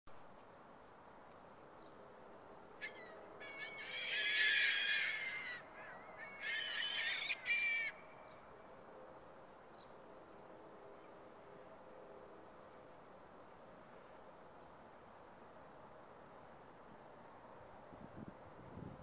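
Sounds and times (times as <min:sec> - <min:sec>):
gulls calling: 0:02.8 - 0:08.2.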